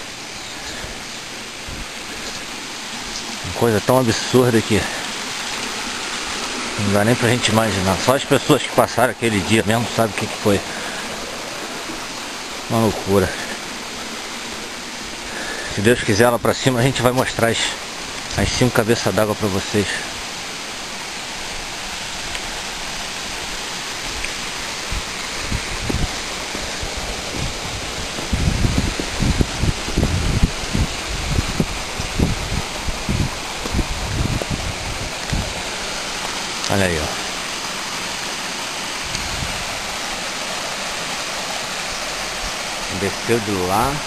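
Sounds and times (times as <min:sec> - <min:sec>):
running water rushing: 0:00.0 - 0:44.0
dull low thumps: 0:24.9 - 0:35.6.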